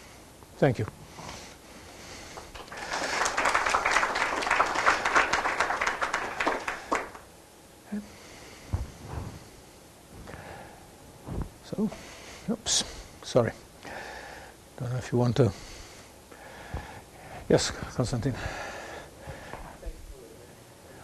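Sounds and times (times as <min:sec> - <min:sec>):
audience applauding: 0:02.4 - 0:07.3
soft low thumps: 0:08.7 - 0:12.0.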